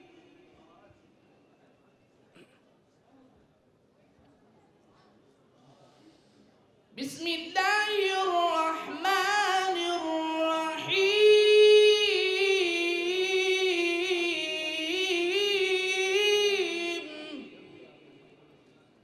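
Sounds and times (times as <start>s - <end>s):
person chanting melodically: 7.0s - 18.4s.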